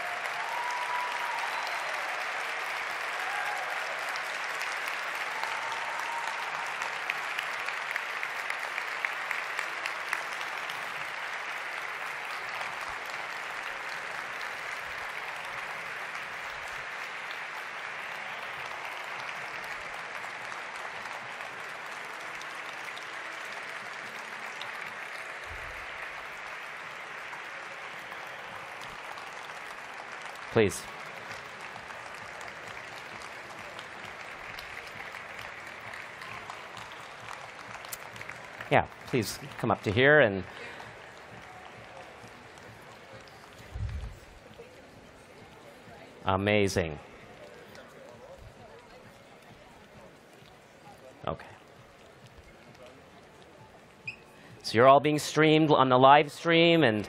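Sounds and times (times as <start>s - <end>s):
sharp nearby claps: 0.0s - 39.9s
audience applauding: 0.0s - 55.6s.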